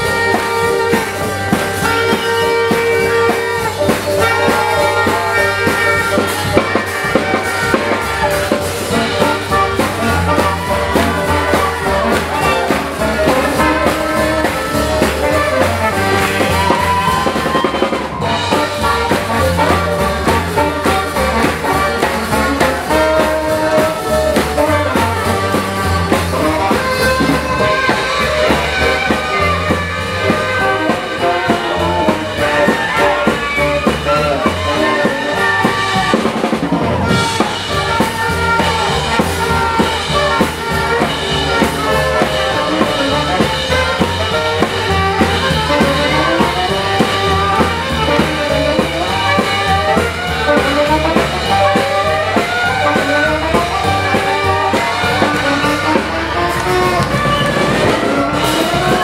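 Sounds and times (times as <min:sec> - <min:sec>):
jazz swing band playing: 0:00.0 - 0:59.0.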